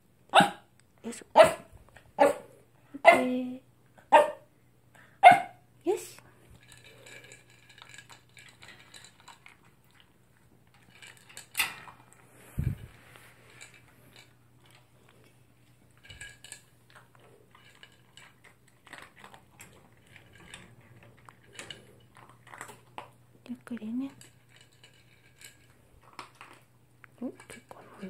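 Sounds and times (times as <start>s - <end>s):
dog chewing food from bowl: 6.4s - 28.0s.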